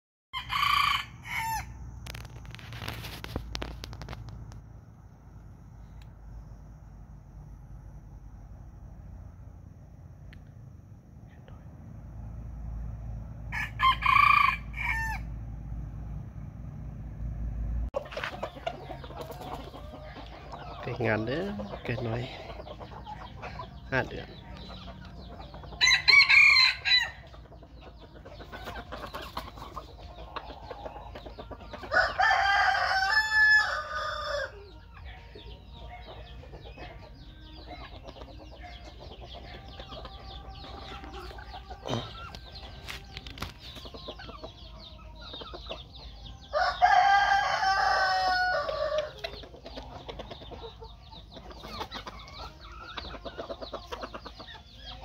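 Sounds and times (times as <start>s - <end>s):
rooster crowing: 0.4s - 1.8s, 13.5s - 15.4s, 25.8s - 27.2s, 31.9s - 35.3s, 46.5s - 49.2s.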